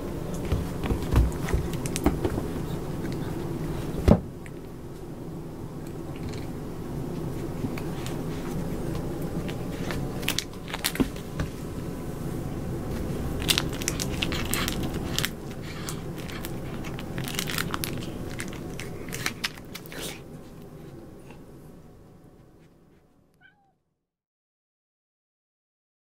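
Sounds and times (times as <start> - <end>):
low background rumble: 0.0 - 23.3
paper crinkling and crackling: 7.2 - 11.6, 12.9 - 21.0.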